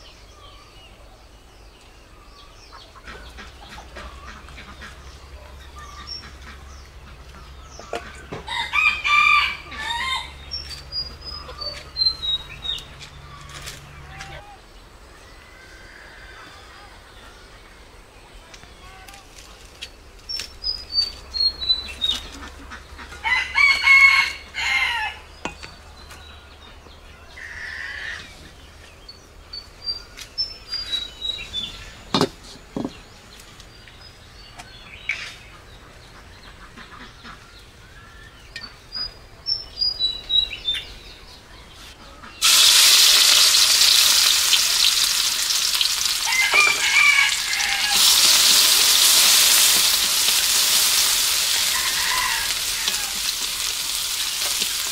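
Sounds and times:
rooster crowing: 8.4s - 10.4s, 23.2s - 25.3s, 46.2s - 48.8s, 51.1s - 53.4s
small bird chirping: 9.7s - 14.0s, 19.9s - 22.5s
food sizzling in a wok: 42.4s - 54.9s.

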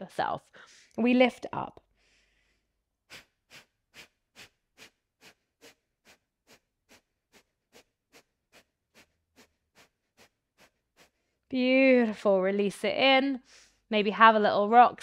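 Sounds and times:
rapid forceful breath exhales: 2.0s - 11.4s.

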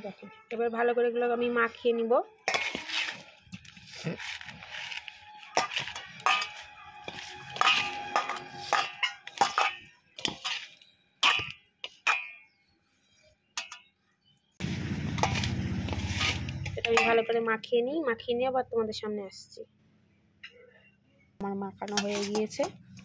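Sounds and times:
clinks and scrapes in metal bowl: 2.4s - 13.9s, 15.2s - 17.4s, 21.8s - 22.8s.

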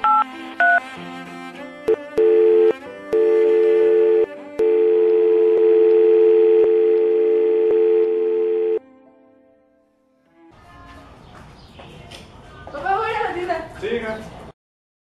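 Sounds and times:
telephone dial tone: 2.1s - 8.8s.

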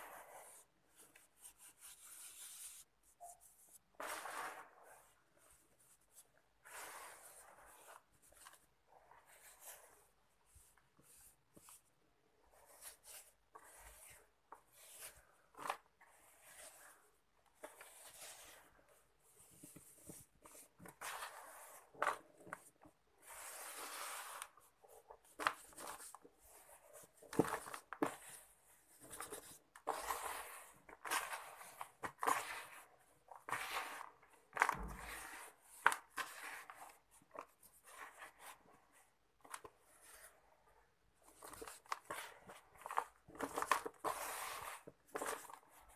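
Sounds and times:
sand and cement sifted by hand: 0.0s - 3.0s, 4.0s - 8.1s, 20.1s - 22.3s, 23.2s - 24.7s.

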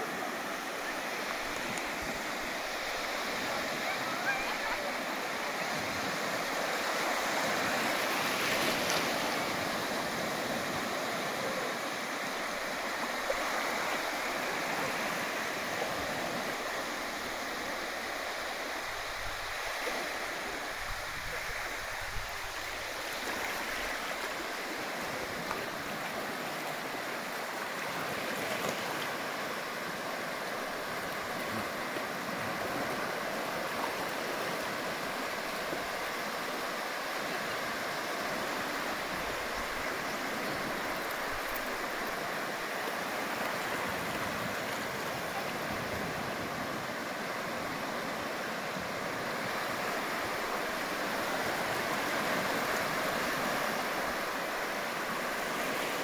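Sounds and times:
sea waves breaking on beach: 0.0s - 56.0s.

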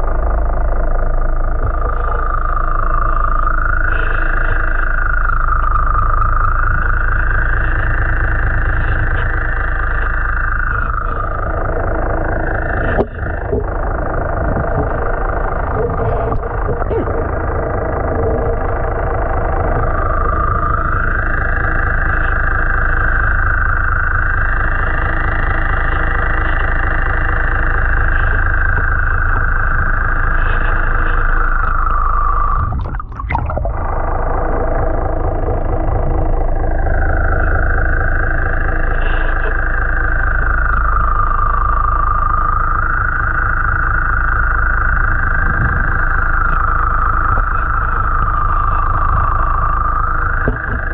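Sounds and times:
boat engine drone underwater: 0.0s - 50.9s
whining tone: 0.0s - 50.9s.

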